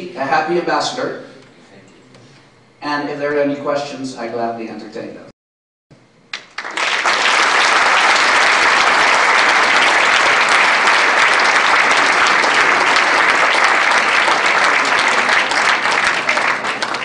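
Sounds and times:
audience applauding: 0:06.3 - 0:17.0.

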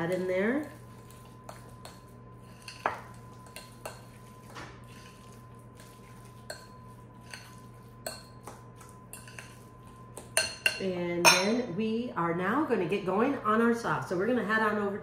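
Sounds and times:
utensil clinking against glass bowl: 0:06.4 - 0:09.6, 0:10.2 - 0:11.6.

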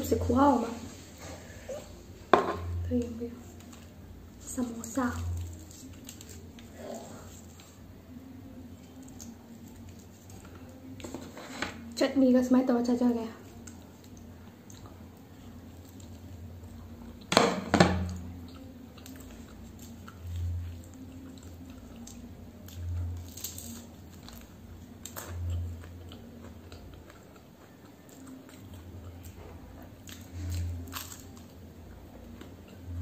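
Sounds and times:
slow chewing with low thuds: 0:03.4 - 0:11.9, 0:13.4 - 0:17.3, 0:18.1 - 0:33.0
crisp bite: 0:19.0 - 0:29.2, 0:30.0 - 0:31.6.

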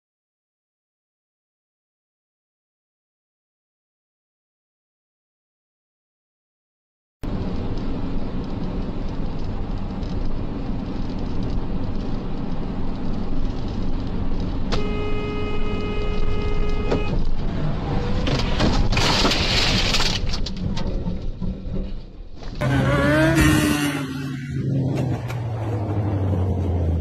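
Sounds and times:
car road and engine noise: 0:07.2 - 0:27.0
car horn: 0:14.7 - 0:17.4
car crash impacts: 0:18.2 - 0:20.5.

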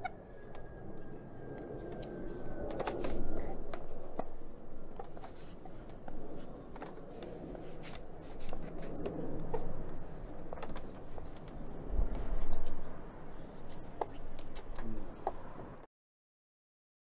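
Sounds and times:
low rumble: 0:00.0 - 0:15.8.

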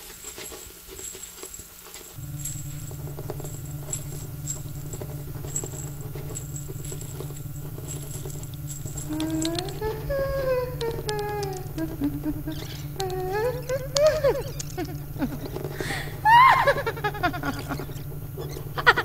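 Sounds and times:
faint clicks and crackles: 0:00.0 - 0:19.0
low drone: 0:02.2 - 0:19.0
sliding wavering tone: 0:02.2 - 0:19.0.

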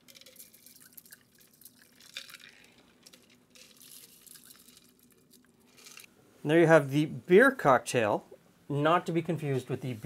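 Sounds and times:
liquid trickling: 0:00.0 - 0:06.1.

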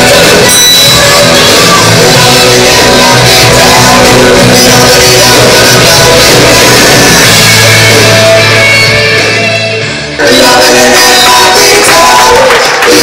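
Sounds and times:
loud rock music with driving beat: 0:00.0 - 0:13.0.

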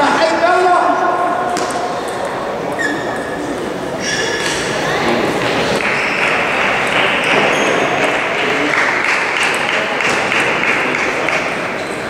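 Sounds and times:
background hiss in hall: 0:00.0 - 0:12.0
table tennis balls ticking: 0:05.4 - 0:12.0.

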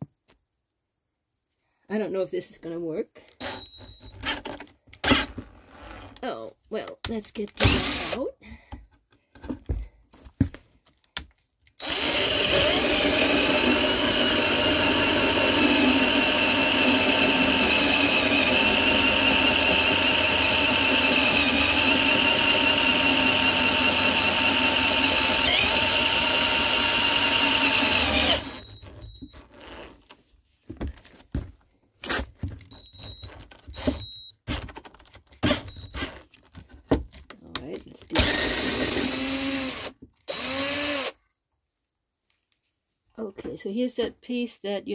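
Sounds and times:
drill hole saw cutting wood: 0:03.4 - 0:04.0, 0:07.6 - 0:08.2, 0:11.8 - 0:29.9, 0:38.2 - 0:41.2.

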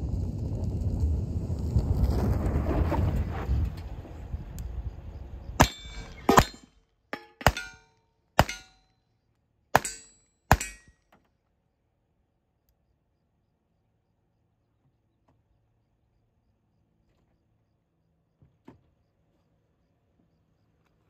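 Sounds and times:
tyres on dirt: 0:00.0 - 0:07.8
handgun shots: 0:05.6 - 0:06.6, 0:07.2 - 0:07.8, 0:08.4 - 0:08.8, 0:09.8 - 0:10.9
metallic ring of steel targets: 0:05.6 - 0:08.9, 0:09.8 - 0:11.0.

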